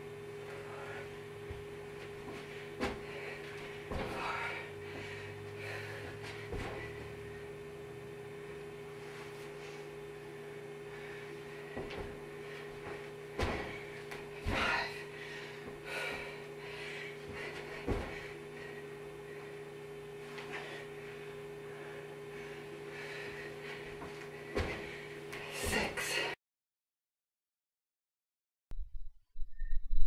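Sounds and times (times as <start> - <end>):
electrical hum: 0.0 - 26.4
thuds on carpeted floor: 1.5 - 4.4, 6.0 - 7.2, 11.7 - 15.0, 17.3 - 18.3, 23.9 - 25.0.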